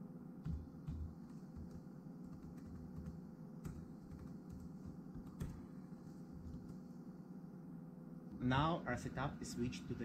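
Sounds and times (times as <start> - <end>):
laptop keyboard key presses: 0.4 - 5.6.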